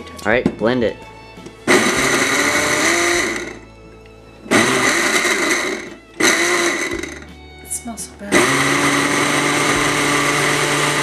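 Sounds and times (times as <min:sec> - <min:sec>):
blender running: 0:01.7 - 0:03.6, 0:04.5 - 0:07.4, 0:08.3 - 0:11.0.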